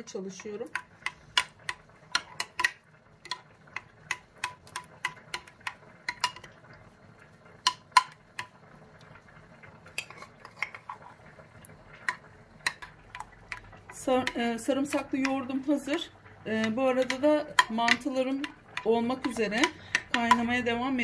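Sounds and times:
spoon clinking against a bowl: 16.6s - 20.5s.

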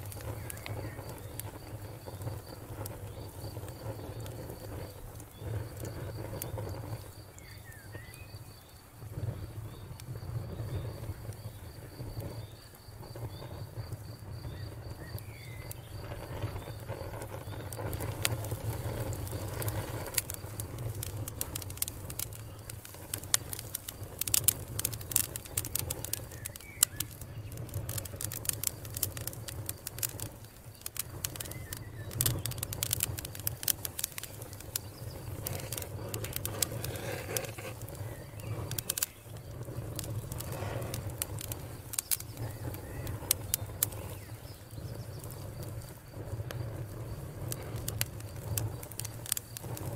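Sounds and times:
campfire crackling and popping: 0.0s - 49.9s
birds chirping: 33.9s - 45.4s.

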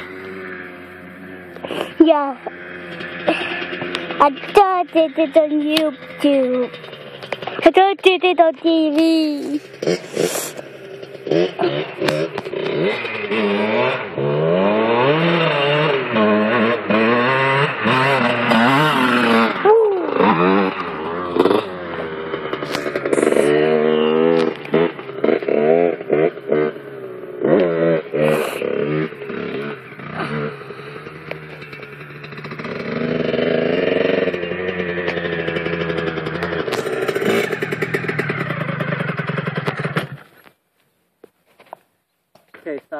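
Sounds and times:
motocross bike engine revving: 0.0s - 40.5s.

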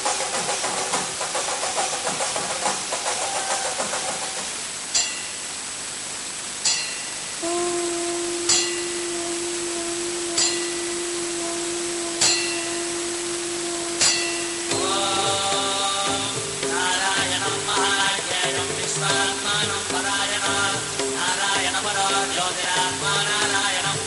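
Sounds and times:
steady hiss: 0.0s - 24.0s
bell strikes ringing: 4.9s - 5.4s, 6.6s - 7.3s, 8.5s - 9.0s, 10.4s - 10.9s
steady held tone: 6.6s - 23.1s
faint music: 7.4s - 24.0s.

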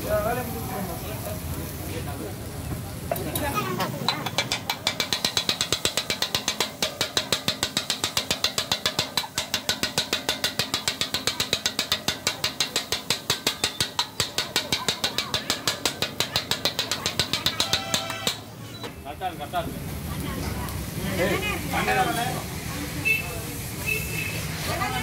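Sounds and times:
metal blades chopping on griddle: 3.1s - 18.5s.

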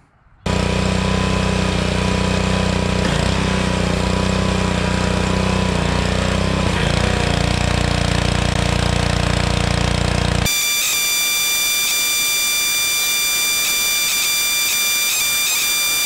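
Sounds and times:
high electronic tone: 10.4s - 16.0s.

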